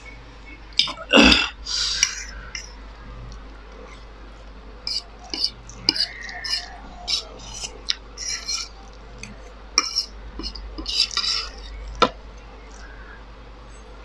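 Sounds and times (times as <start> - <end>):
noodles slurped and chewed: 3.3 - 13.1
metal fork clinking on plate: 4.9 - 12.0.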